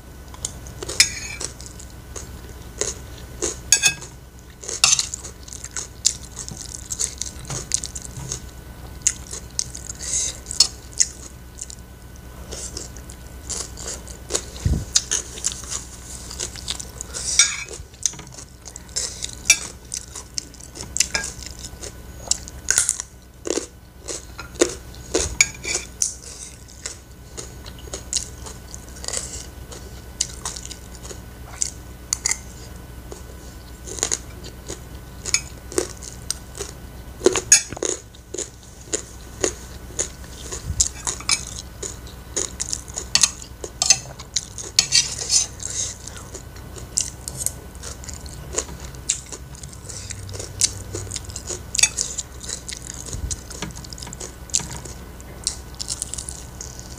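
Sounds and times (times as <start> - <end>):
person chewing food: 0.3 - 56.9
cutlery scraping a ceramic plate: 1.0 - 1.5, 3.7 - 4.1, 17.2 - 18.2, 25.2 - 25.9, 44.8 - 45.9.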